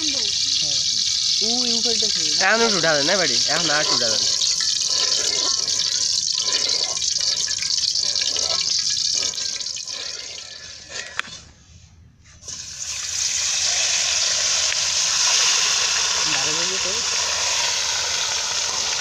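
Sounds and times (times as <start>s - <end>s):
hot oil sizzling in a wok: 0.0s - 11.2s, 12.4s - 19.0s
metal spatula scraping wok: 2.7s - 11.5s.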